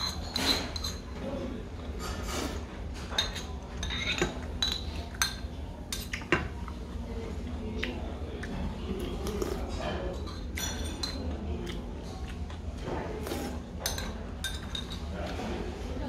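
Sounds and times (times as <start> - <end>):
metal spoon clinking on bowl: 3.2 - 6.3, 10.2 - 11.3, 13.8 - 15.1.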